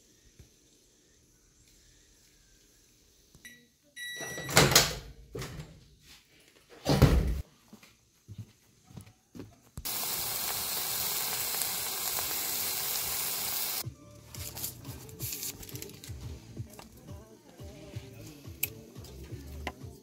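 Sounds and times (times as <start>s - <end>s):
hot oil sizzling: 9.8s - 13.8s.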